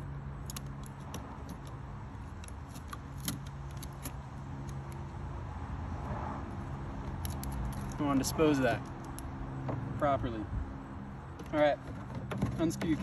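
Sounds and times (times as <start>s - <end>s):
fingernails peeling a sticker: 0.4s - 5.0s.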